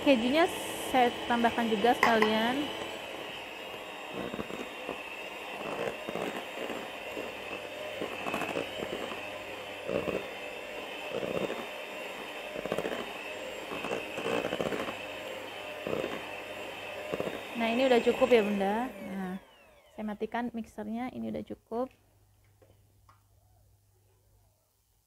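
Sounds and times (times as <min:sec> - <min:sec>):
electric hand mixer whining: 0:00.0 - 0:20.6
beaters scraping and knocking bowl: 0:01.5 - 0:02.8, 0:04.0 - 0:10.4, 0:11.0 - 0:15.1, 0:15.7 - 0:18.6.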